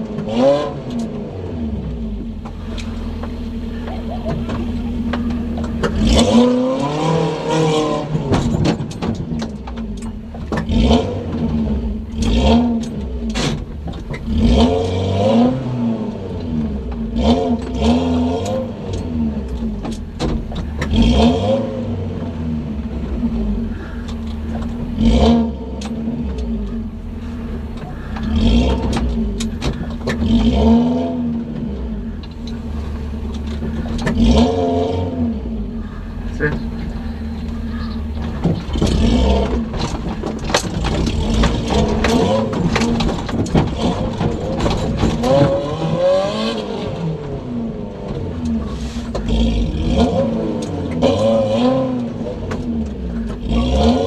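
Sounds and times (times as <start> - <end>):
engine revving in bursts: 0.0 - 8.7, 10.5 - 19.8, 20.4 - 54.0
knocks and clatter from body: 8.2 - 11.6, 12.2 - 14.4, 18.9 - 21.1, 24.1 - 25.0, 27.6 - 30.7, 37.4 - 46.0.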